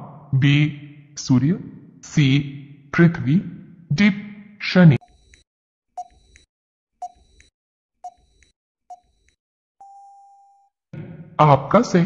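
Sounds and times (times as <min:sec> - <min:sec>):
long steady beep: 0:09.8 - 0:10.6.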